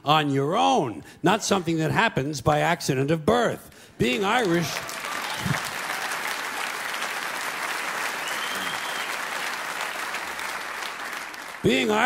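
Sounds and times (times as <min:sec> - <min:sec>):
audience clapping: 0:04.0 - 0:12.0.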